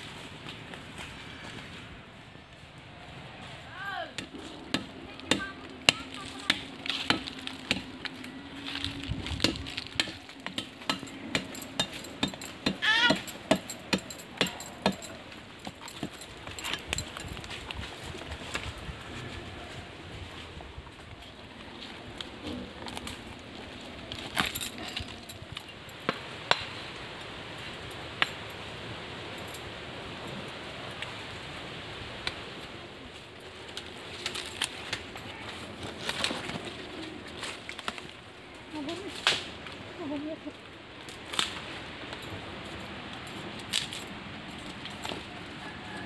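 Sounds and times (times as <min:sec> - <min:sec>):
forest ambience: 0:00.0 - 0:46.0
dry sticks cracking: 0:04.1 - 0:18.8, 0:33.5 - 0:45.5
machete striking bark: 0:04.2 - 0:08.0, 0:09.3 - 0:15.2.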